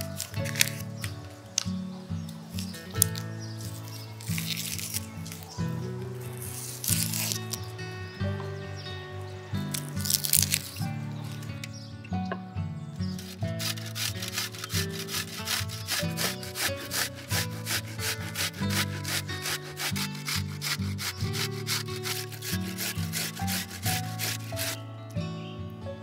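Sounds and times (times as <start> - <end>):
onion rasping on grater: 0.0 - 1.0, 2.6 - 5.5, 6.3 - 7.7, 9.7 - 10.8, 13.2 - 24.8
soft background music: 0.0 - 26.0.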